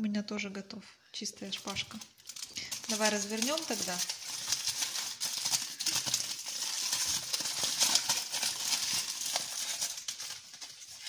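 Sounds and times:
aluminium foil crinkling: 1.4s - 11.0s.

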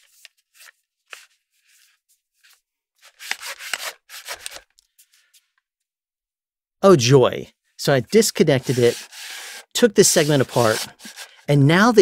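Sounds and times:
metal pole sections scraping: 8.6s - 11.5s.

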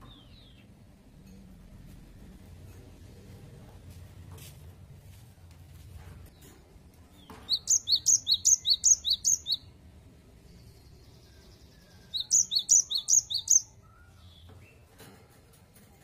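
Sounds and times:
bird singing paired whistles: 7.5s - 9.7s, 12.0s - 14.2s.

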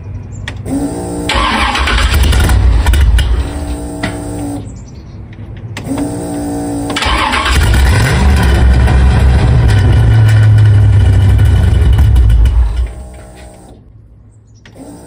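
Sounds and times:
engine cranking on starter: 0.6s - 4.6s, 5.8s - 13.8s
engine running loudly: 0.6s - 4.7s, 5.8s - 13.8s.

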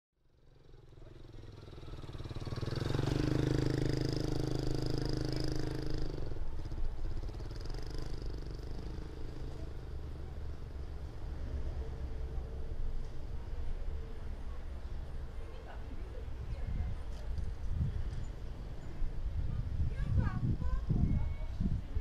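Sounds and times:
vehicle engine running: 0.3s - 15.4s.

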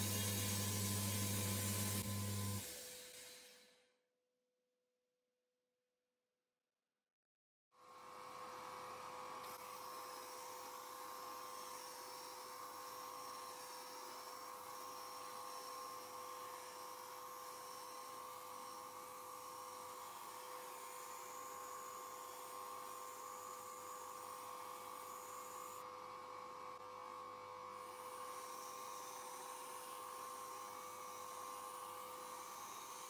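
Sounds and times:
belt sander humming: 0.0s - 2.7s.

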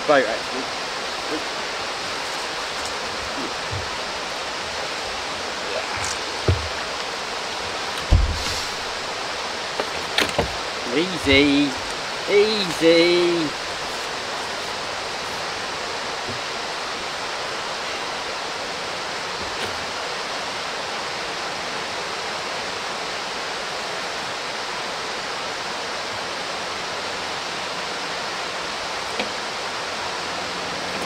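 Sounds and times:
steady rushing hiss: 0.0s - 31.0s.

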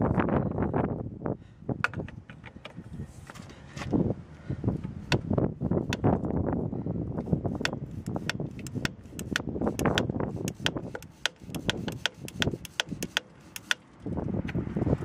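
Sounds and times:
sharp clicks from belt pulley: 7.6s - 13.8s.

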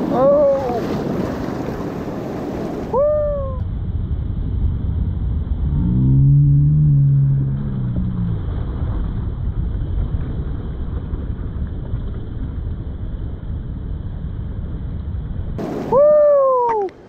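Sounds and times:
held low-pitched tone: 3.0s - 10.0s.

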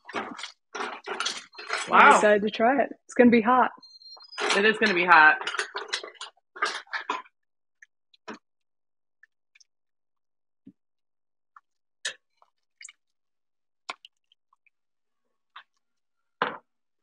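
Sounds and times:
person speaking: 1.9s - 3.7s.

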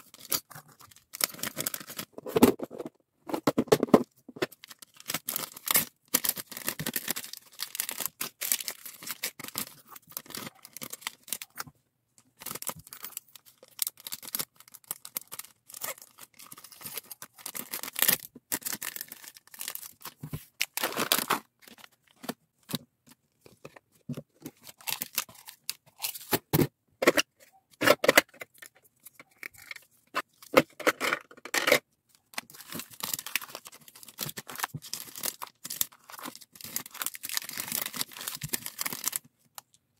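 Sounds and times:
plastic bags crinkling: 4.5s - 11.6s, 12.4s - 22.2s, 32.2s - 39.3s.

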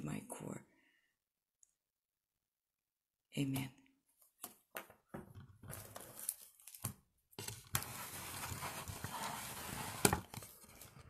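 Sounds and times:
scraping rustle on microphone: 7.8s - 10.2s.

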